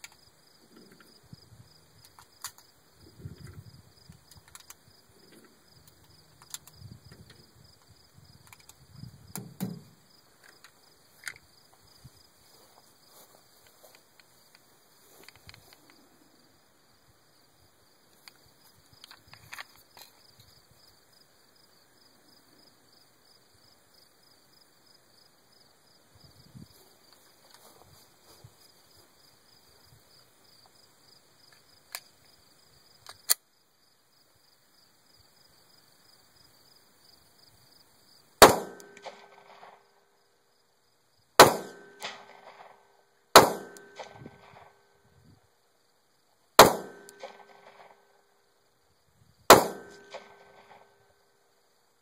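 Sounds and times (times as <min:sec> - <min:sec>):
insects chirping: 0:00.0 - 0:52.0
pistol handling clicks: 0:33.1 - 0:33.4
pistol shots with echo: 0:38.4 - 0:39.8, 0:41.4 - 0:42.8, 0:43.4 - 0:44.8, 0:46.6 - 0:48.0, 0:49.5 - 0:51.0.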